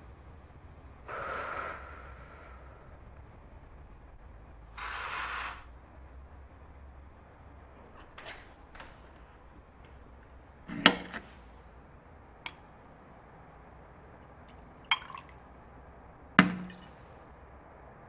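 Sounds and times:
hard objects knocking and clinking: 16.4s - 17.0s.

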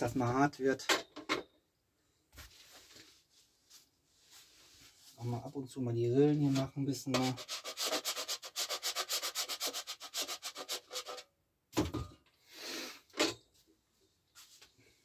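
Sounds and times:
candle rasping on metal grater: 7.2s - 11.2s.

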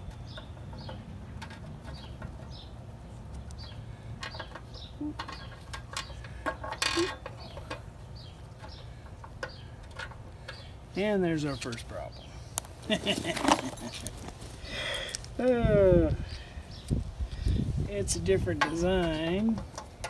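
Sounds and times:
bird chirping: 0.0s - 14.2s, 15.5s - 17.8s
clicks and taps of engine parts: 3.3s - 7.9s, 8.5s - 10.7s
rustle: 11.5s - 20.0s
low wind rumble: 13.8s - 19.8s.

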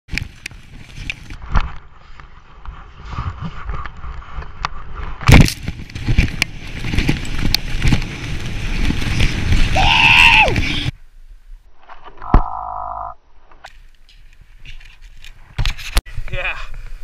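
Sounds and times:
skis scraping over packed snow: 0.1s - 9.8s
wind rumbling on microphone: 0.1s - 11.7s.

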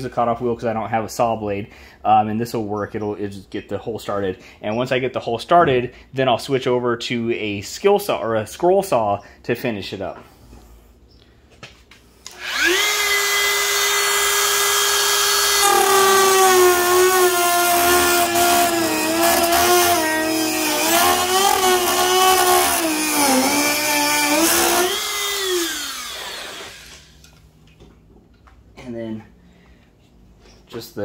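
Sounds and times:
cutoff wheel cutting plastic: 12.3s - 27.2s
rotary tool high whine: 12.3s - 27.3s.

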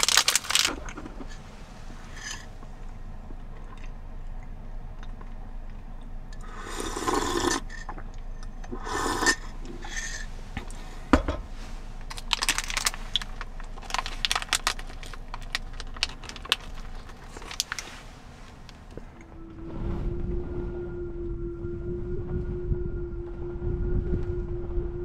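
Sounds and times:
rustling scrapes: 0.0s - 2.6s, 9.6s - 20.1s.

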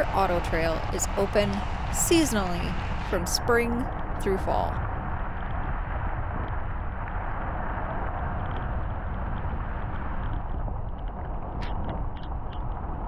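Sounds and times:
vehicle rumble on gravel road: 4.8s - 13.0s.

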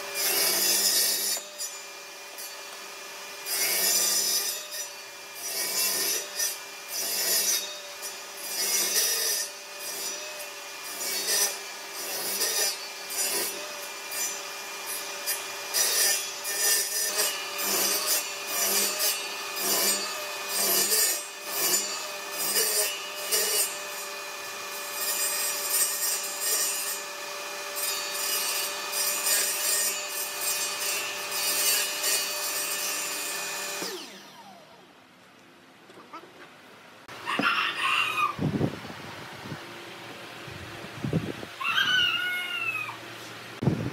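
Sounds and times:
saw blade cutting wood: 0.0s - 34.8s
table saw whine: 0.0s - 34.9s.

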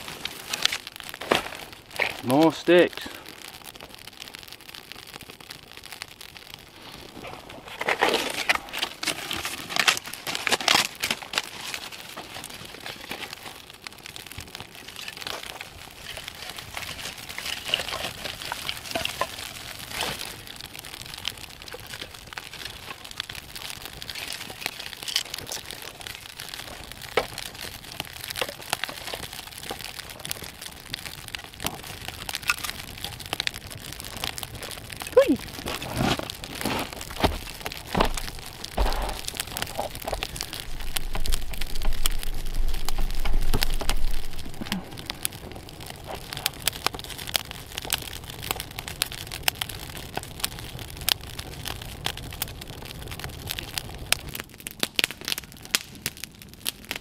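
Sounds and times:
campfire crackling: 0.0s - 57.0s
sticks snapping and clattering: 7.7s - 13.5s, 14.9s - 20.3s, 24.0s - 26.0s, 35.6s - 45.2s.

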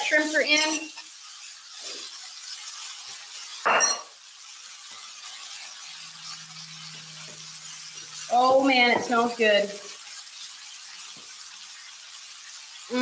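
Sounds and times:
food sizzling in a skillet: 0.0s - 13.0s
dishware clink: 3.6s - 4.1s.

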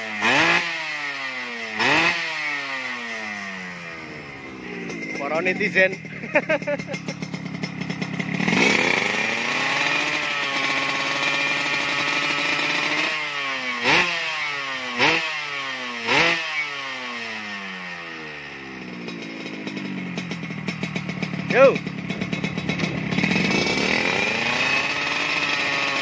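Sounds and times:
two-stroke motorcycle engine revving: 0.0s - 26.0s.

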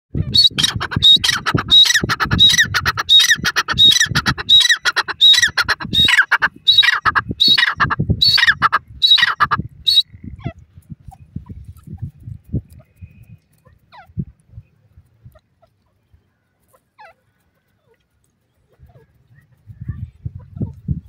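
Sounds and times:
francolin calling: 0.3s - 10.4s.

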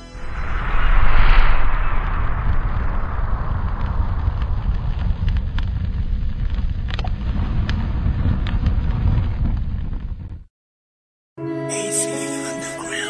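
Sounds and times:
fire crackles: 0.2s - 10.5s
low rumble of burning flames: 0.2s - 10.5s.

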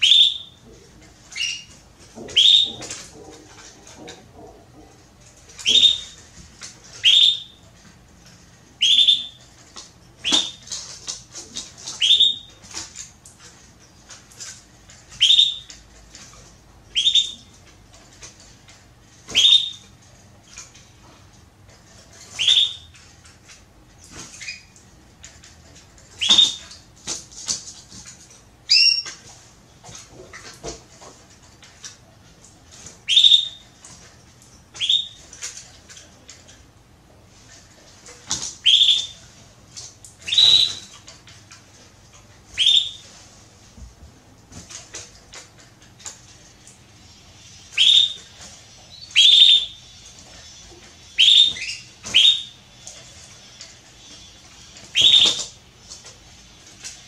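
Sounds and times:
canary giving high calls: 1.3s - 3.0s, 5.6s - 6.2s, 16.9s - 17.5s, 22.4s - 22.9s, 26.2s - 26.6s, 28.7s - 29.2s, 40.2s - 41.0s, 42.6s - 43.0s, 47.6s - 52.7s, 54.2s - 55.6s.

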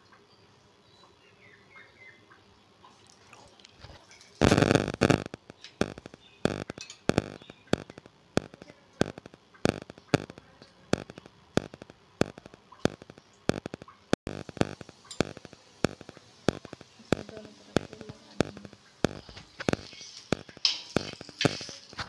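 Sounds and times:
oil sizzling on hot pan: 11.0s - 22.0s
spoon scraping with sizzle: 14.6s - 22.0s.

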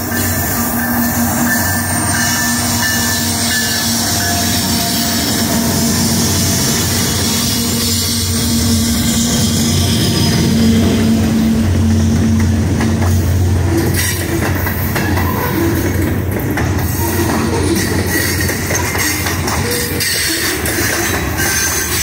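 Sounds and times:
high wheel squeal: 0.0s - 12.2s, 16.8s - 22.0s
train wheels rumbling on rails: 0.0s - 22.0s.

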